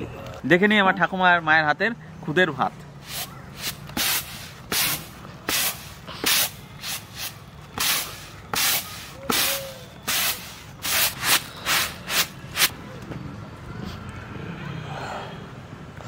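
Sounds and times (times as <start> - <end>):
rice swishing on winnowing tray: 3.0 - 12.7.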